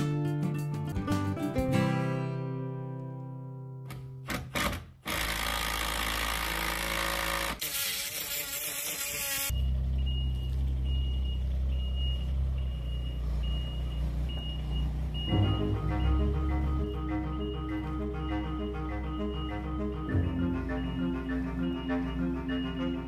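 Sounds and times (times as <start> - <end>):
music: 0.0 - 4.3, 15.2 - 23.0
travel alarm beeping: 9.5 - 23.0
diesel engine running: 9.6 - 23.0.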